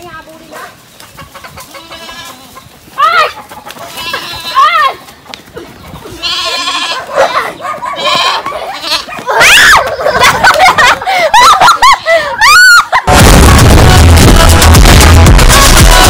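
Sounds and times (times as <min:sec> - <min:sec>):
goats bleating: 0:01.6 - 0:05.1, 0:06.0 - 0:10.0.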